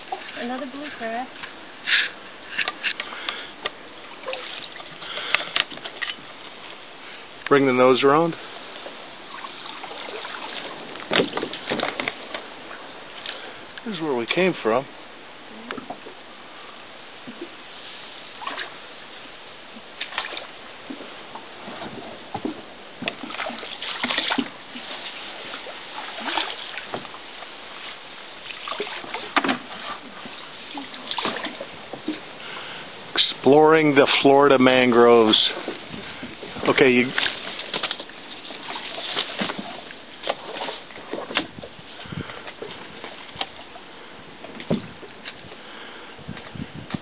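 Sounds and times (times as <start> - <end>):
paddle splashing in water: 0.0 - 47.0
branches scraping inflatable boat: 7.7 - 13.3, 19.9 - 43.6
branches rustling: 8.4 - 14.2, 14.9 - 47.0.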